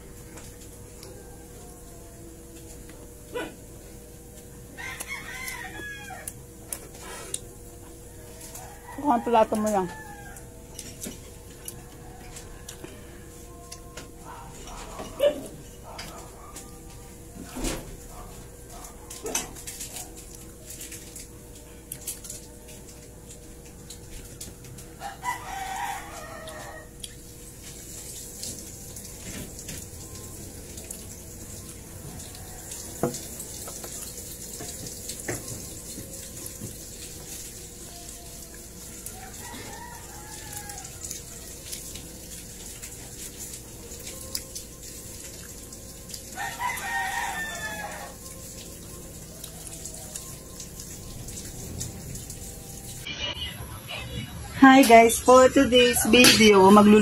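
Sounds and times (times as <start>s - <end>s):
faint hum: 0.0s - 8.8s, 48.8s - 57.0s
rooster crowing: 0.8s - 2.6s, 4.7s - 6.7s, 7.8s - 20.6s, 24.1s - 27.1s, 32.0s - 34.0s, 37.9s - 41.8s, 46.3s - 48.4s.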